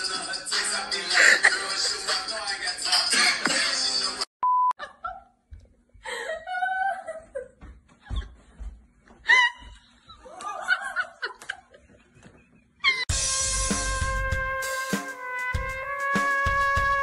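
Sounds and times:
young women laughing: 4.8s - 13.1s
burst of music: 13.1s - 17.0s.

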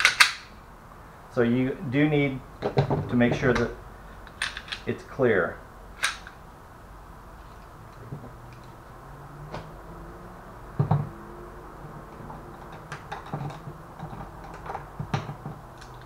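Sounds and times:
hard objects clicking on workbench: 12.6s - 16.0s.

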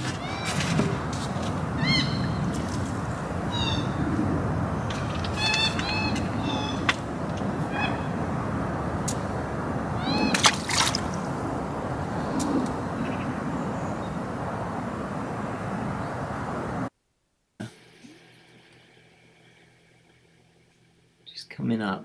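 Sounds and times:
outdoor rushing noise: 0.0s - 16.9s
high chirping calls: 1.7s - 2.8s, 3.4s - 4.1s, 4.7s - 8.3s, 9.9s - 11.2s.

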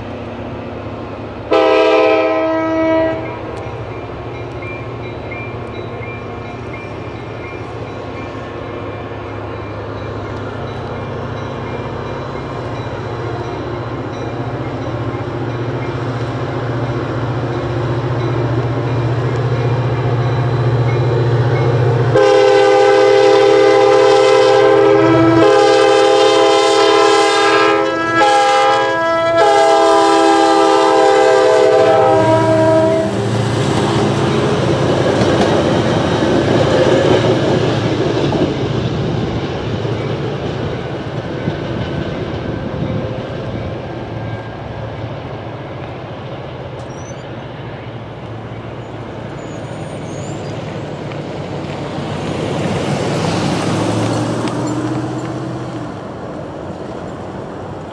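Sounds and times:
diesel locomotive running: 0.0s - 57.9s
train passing with rumble: 0.0s - 57.9s
train horn blowing: 1.5s - 3.6s, 22.0s - 33.3s
wheels clacking over rail joints: 33.1s - 57.9s.

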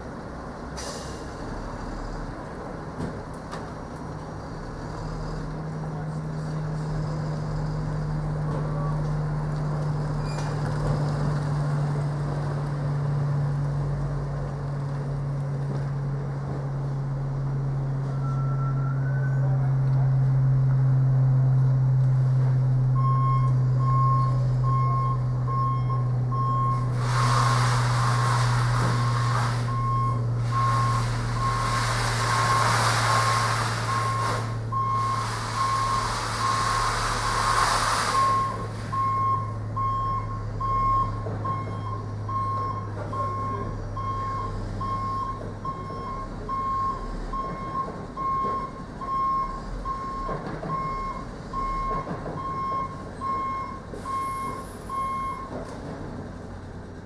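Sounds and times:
diesel lorry engine running: 0.0s - 57.0s
reversing alarm beeping: 18.0s - 19.6s, 23.0s - 37.4s, 38.1s - 55.6s
loud air hisses: 26.9s - 29.7s, 30.4s - 38.8s.

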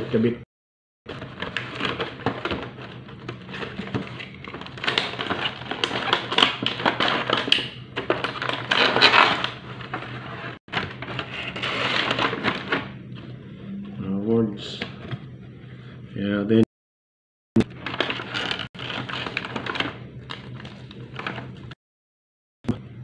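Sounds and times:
plastic packaging crinkling and snapping: 1.1s - 12.9s, 17.7s - 21.6s.

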